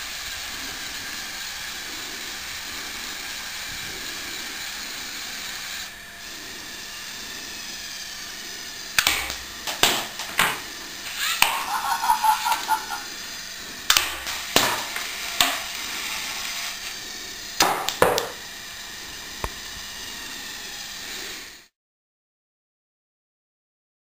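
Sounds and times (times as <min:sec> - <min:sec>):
robot arm knocking plastic box: 0:09.0 - 0:10.7, 0:13.9 - 0:15.8, 0:17.6 - 0:18.4.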